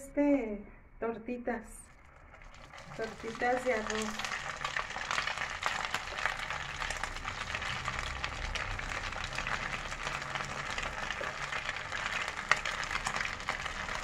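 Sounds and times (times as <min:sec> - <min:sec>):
patties sizzling in hot oil: 0:01.8 - 0:14.0.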